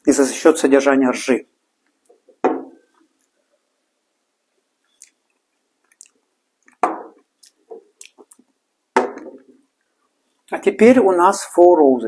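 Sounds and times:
faint mouth clicks: 4.9s - 5.2s, 5.8s - 6.8s
mouth smacks: 4.9s - 8.5s.

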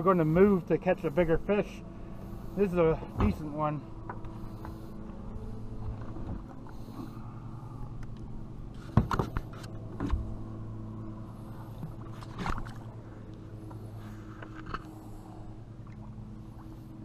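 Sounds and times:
steady low hum: 0.0s - 17.0s
knocks and splashes at boat side: 11.8s - 12.9s.

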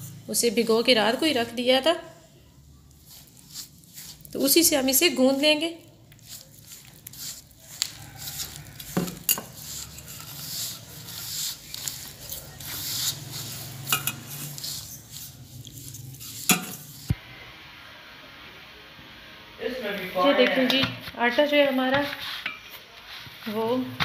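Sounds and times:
dough squishing under fingers: 2.7s - 17.2s
faint steady hiss: 16.4s - 23.7s.

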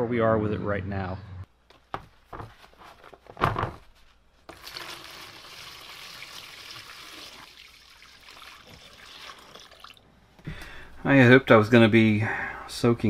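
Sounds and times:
liquid pouring into plastic tub: 4.5s - 10.0s.

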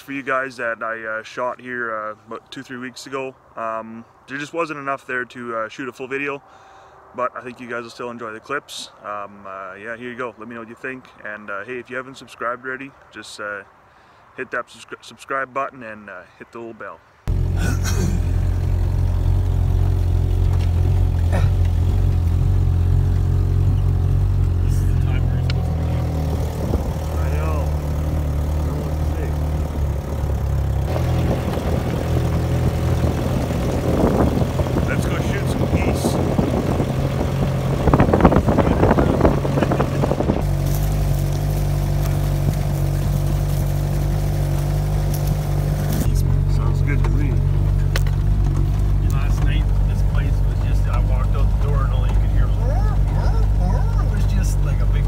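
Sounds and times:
vehicle engine droning: 17.2s - 55.0s.

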